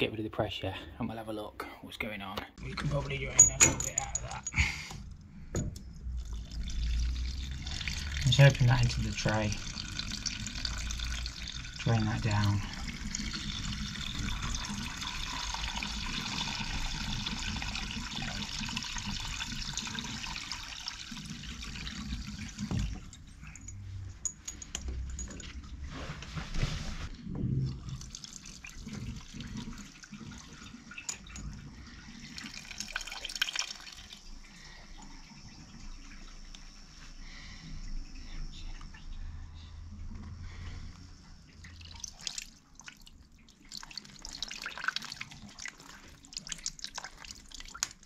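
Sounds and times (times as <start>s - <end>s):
water pouring into plastic tray: 6.2s - 23.1s, 27.7s - 31.4s, 32.1s - 34.9s, 41.6s - 48.0s.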